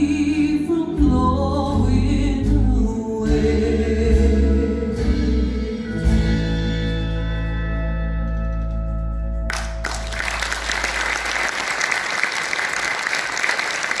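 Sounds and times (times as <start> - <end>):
audience applause: 9.5 - 14.0.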